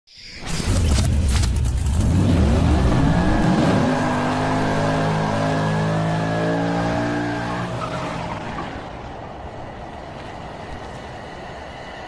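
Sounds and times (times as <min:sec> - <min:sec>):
tyres spinning and skidding: 0:00.4 - 0:12.0
car engine revving: 0:00.6 - 0:08.9.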